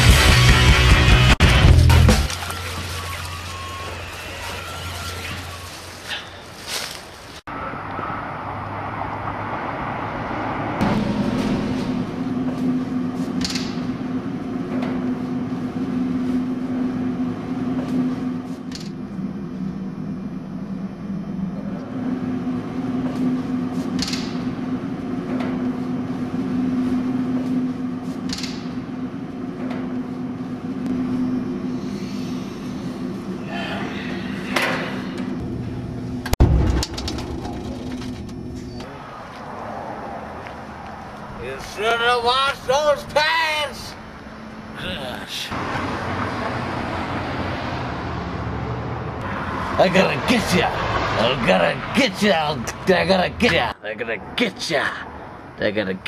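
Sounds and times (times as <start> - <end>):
laundry machines humming: 0.0 - 56.0.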